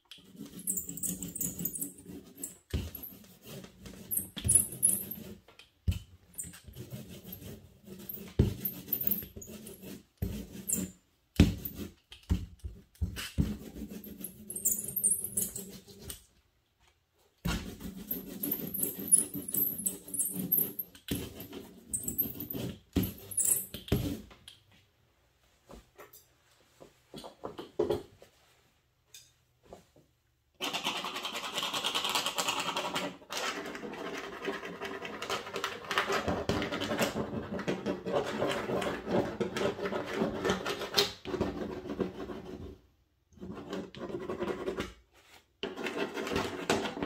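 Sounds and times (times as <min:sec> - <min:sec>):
tool scuffing paint on paper: 0:06.2 - 0:14.6, 0:17.4 - 0:24.3, 0:43.4 - 0:46.9.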